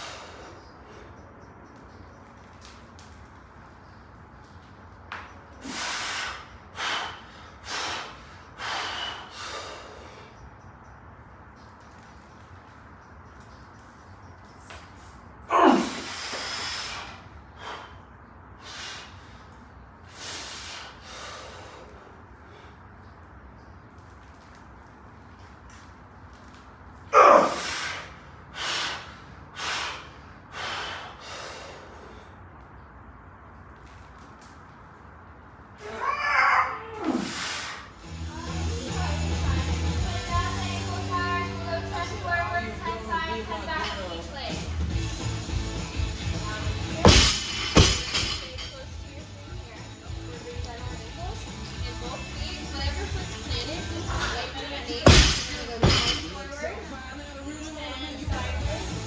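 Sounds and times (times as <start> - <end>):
forceful hissing breaths: 0.0 - 1.4, 5.5 - 10.6, 15.0 - 23.0, 27.2 - 32.6, 37.1 - 38.1
man breathing out forcefully: 27.5 - 32.4.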